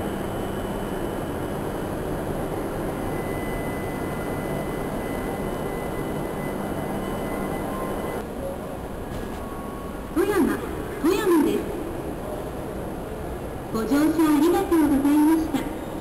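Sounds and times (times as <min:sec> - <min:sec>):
thin high tone: 0:02.6 - 0:08.2.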